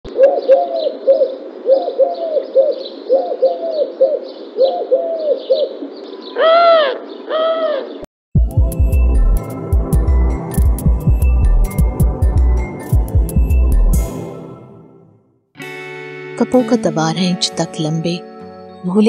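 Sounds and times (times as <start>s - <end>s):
doves cooing: 0.1s - 8.1s
small birds chirping: 0.2s - 8.0s.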